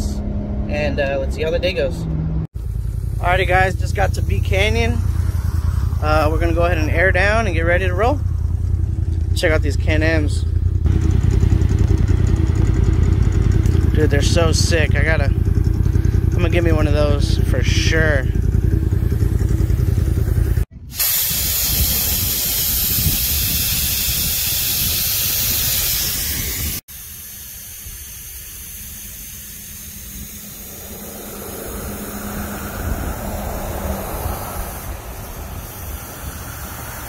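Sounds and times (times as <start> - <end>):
low rumble: 0.0 - 20.8, 29.5 - 37.0
air hissing from tyre valve: 2.6 - 6.9, 18.8 - 37.0.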